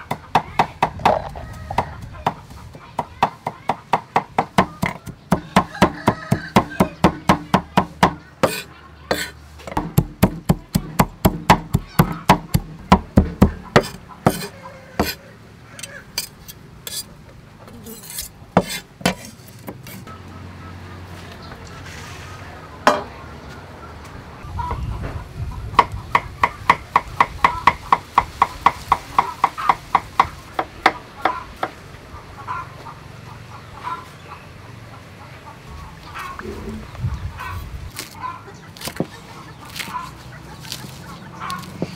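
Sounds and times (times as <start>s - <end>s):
cleaver chopping on wooden board: 3.0s - 15.2s, 18.6s - 19.9s.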